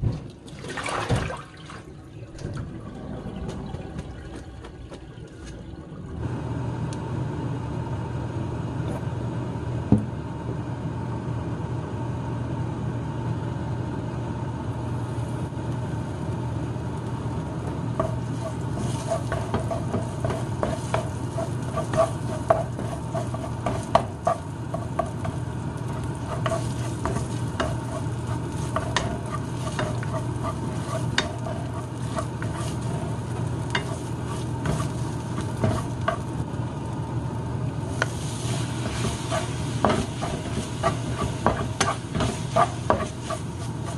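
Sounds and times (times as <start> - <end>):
low steady hum: 0.0 - 43.9
wooden spatula scraping wok: 17.7 - 36.4, 37.8 - 43.9
paste sizzling in hot oil: 17.8 - 37.0, 37.8 - 43.9.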